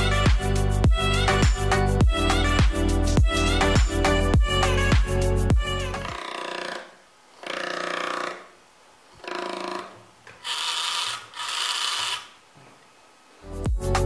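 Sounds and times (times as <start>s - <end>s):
small electric motor spinning propeller: 10.4s - 12.3s.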